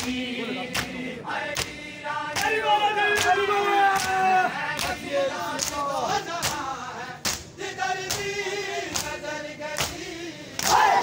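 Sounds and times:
crowd of men chanting: 0:00.0 - 0:11.0
hands slapping chests: 0:06.4 - 0:09.2.

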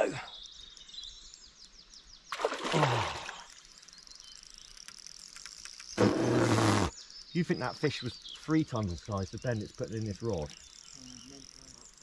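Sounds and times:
small birds twittering: 0:00.0 - 0:12.0
rush of water: 0:02.4 - 0:03.5
fish thrashing and splashing: 0:02.4 - 0:03.6.

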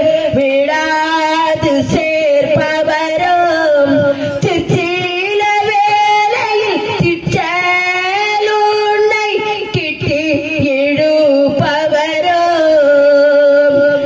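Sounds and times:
woman singing into microphone: 0:00.0 - 0:14.0.

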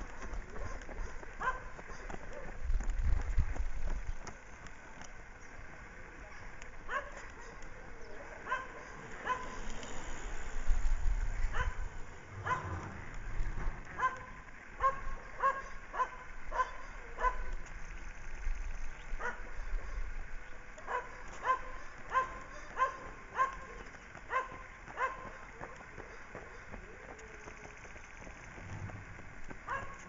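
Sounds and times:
dog barking in high yaps: 0:08.4 - 0:09.6, 0:12.4 - 0:12.8, 0:14.0 - 0:17.5, 0:20.8 - 0:25.3, 0:29.7 - 0:30.0
low rumble: 0:09.9 - 0:14.1.

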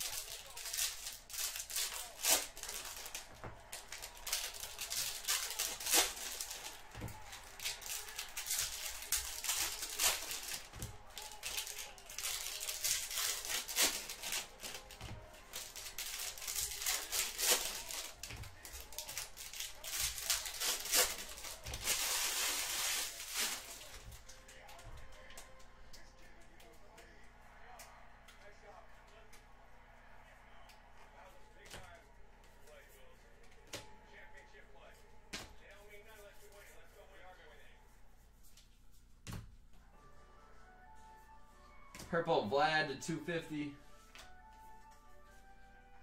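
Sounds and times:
card wrappers crinkling: 0:00.0 - 0:24.4
cards clicking and flicking: 0:00.0 - 0:25.5.

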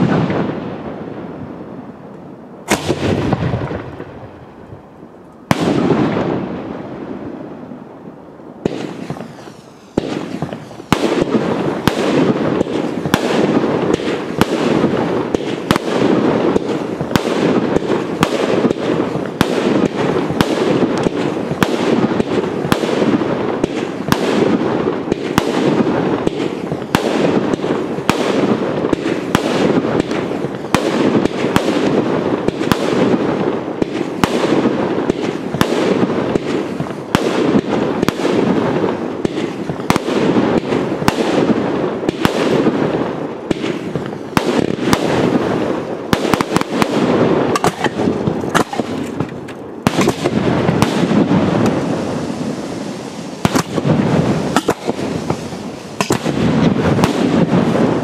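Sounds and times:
fireworks bursting: 0:00.0 - 0:58.0.

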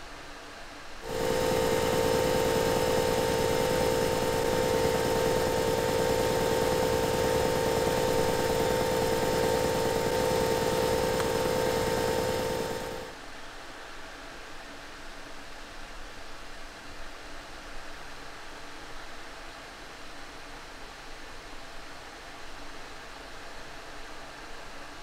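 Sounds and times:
electric motor whining: 0:01.1 - 0:13.1.

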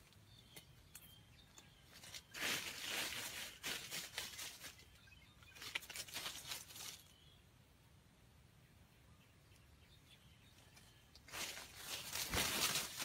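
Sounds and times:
crunching in dry leaves: 0:01.8 - 0:07.2, 0:11.2 - 0:13.0.

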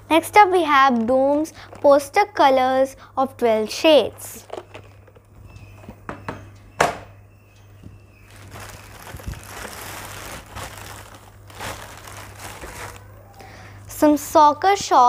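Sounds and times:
plastic bag rustling: 0:00.8 - 0:02.6, 0:04.1 - 0:05.5, 0:08.2 - 0:13.6.

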